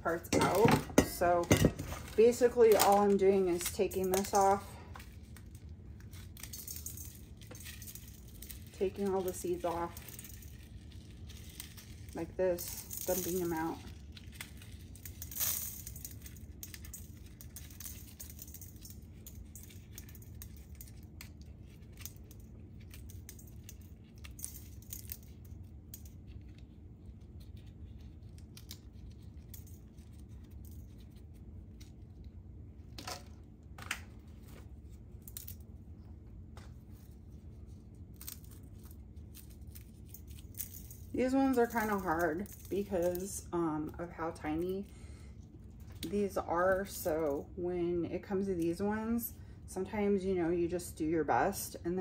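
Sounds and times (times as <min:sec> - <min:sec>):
steady low hum: 0:00.0 - 0:52.0
dried chili skins crackling: 0:01.0 - 0:32.7, 0:36.8 - 0:47.4.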